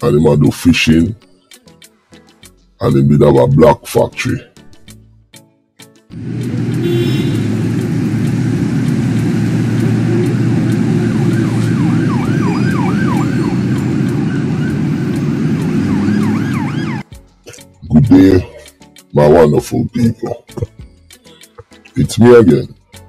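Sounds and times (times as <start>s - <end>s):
loud rumbling noise: 6.2s - 17.0s
siren wailing: 6.8s - 17.0s.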